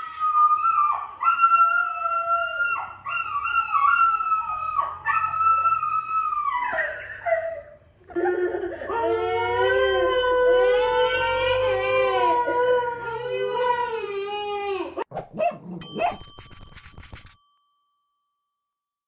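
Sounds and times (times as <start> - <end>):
dog howling on television: 0.0 - 7.0.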